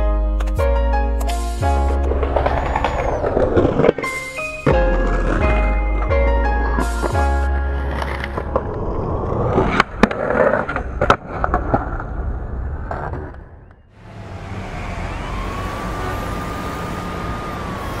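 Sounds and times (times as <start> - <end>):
skateboard wheels rolling on concrete: 0.4 - 18.0
street noise: 1.2 - 5.6, 12.1 - 18.0
skateboard clacks: 1.2 - 6.1
faint rising and falling tone: 14.0 - 18.0.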